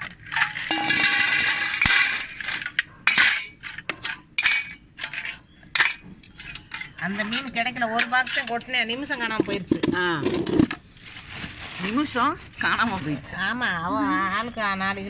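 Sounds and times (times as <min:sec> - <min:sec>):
knocks and clinks: 0:00.0 - 0:10.7
crab shells clattering on metal: 0:00.0 - 0:10.8.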